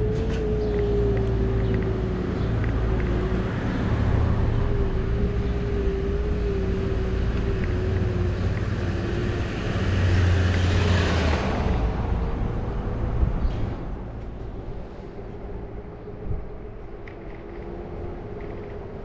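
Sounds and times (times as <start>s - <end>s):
wind and road rumble: 0.0s - 19.0s
van passing with a rush: 1.3s - 14.7s.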